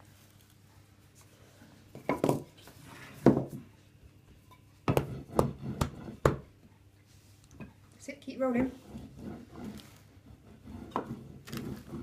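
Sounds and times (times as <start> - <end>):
rolling pin knocking on plate: 4.9 - 6.4.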